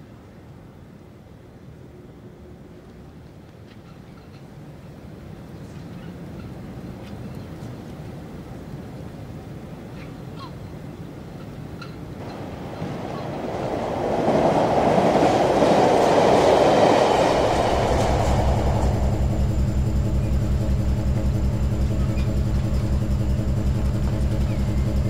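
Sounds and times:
train rumbling past: 11.2 - 25.0
pulsing low engine thrum: 16.9 - 25.0.

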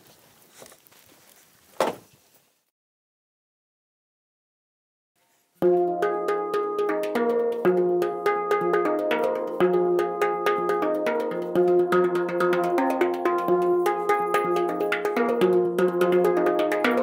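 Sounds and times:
handpan ringing notes: 5.6 - 17.0.

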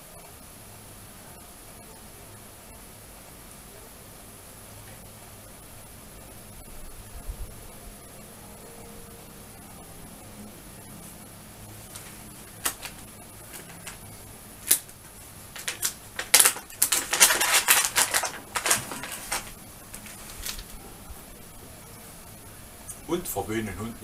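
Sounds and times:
plastic bag crinkling: 11.8 - 20.8.

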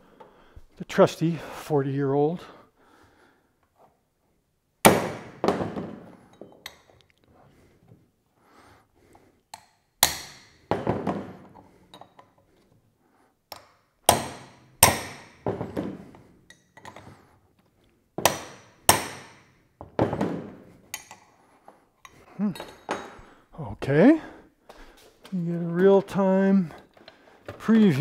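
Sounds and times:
hammer striking metal wrench: 9.5 - 10.6, 18.2 - 19.4, 20.9 - 21.2.

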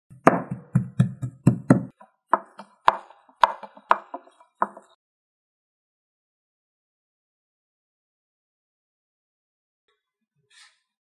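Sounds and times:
cleaver chopping meat on wood: 0.1 - 5.0.

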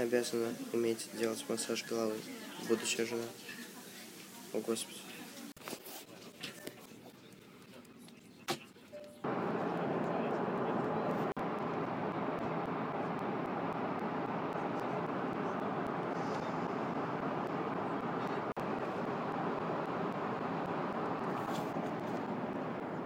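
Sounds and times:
airliner cabin drone: 9.2 - 23.0.

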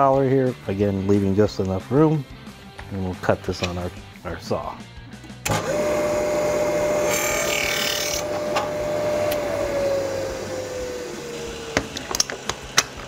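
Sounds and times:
chop saw motor whine: 5.4 - 13.0.

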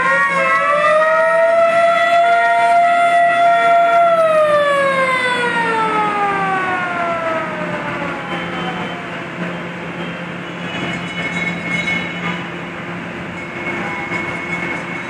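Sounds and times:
fire engine siren wailing: 0.0 - 10.9.

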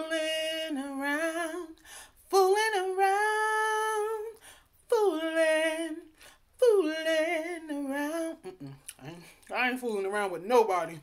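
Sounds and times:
woman singing a cappella: 0.0 - 11.0
singer breathing: 1.8 - 2.2, 4.4 - 4.8.

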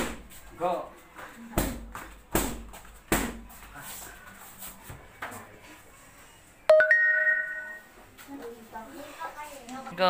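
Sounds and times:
strikes hitting a padded pad: 1.6 - 3.5.

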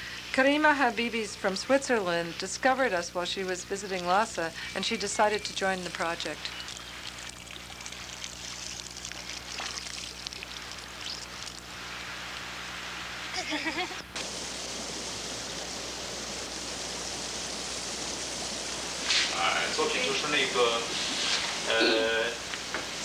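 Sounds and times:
low steady hum: 0.0 - 23.0
running water rushing: 4.0 - 13.4, 14.1 - 23.0
faint voice: 21.7 - 22.4.

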